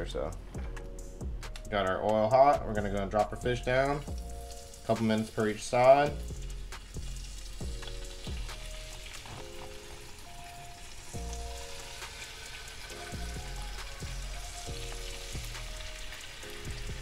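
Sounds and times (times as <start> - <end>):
background music with slow bass beat: 0.0 - 17.0
fish sizzling in hot oil: 3.7 - 17.0.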